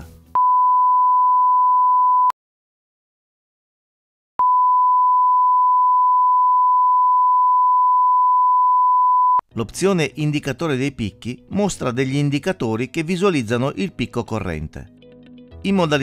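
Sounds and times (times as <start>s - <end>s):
sine-wave test tone: 0.4s - 2.3s, 4.4s - 9.4s.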